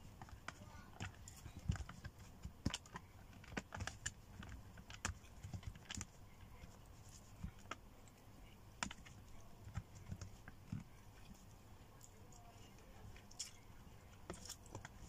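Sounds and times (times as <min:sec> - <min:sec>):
chewing: 0:12.0 - 0:15.0.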